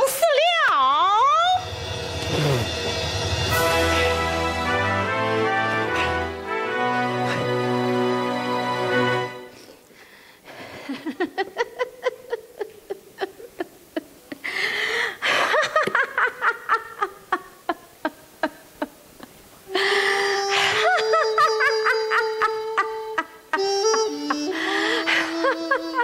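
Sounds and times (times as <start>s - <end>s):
traditional opera accompaniment: 19.9s - 26.0s.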